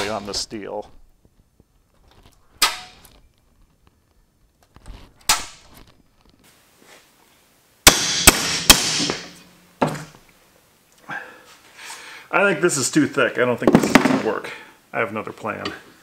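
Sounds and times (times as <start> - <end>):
sharp knocks: 7.9 - 10.1.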